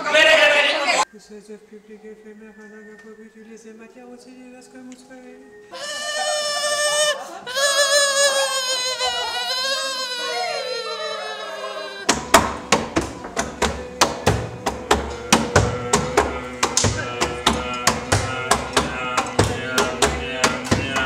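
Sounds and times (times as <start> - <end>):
voices singing a wavering note: 0.7 - 12.2, 13.0 - 21.0
sharp hand strikes: 12.1 - 21.0.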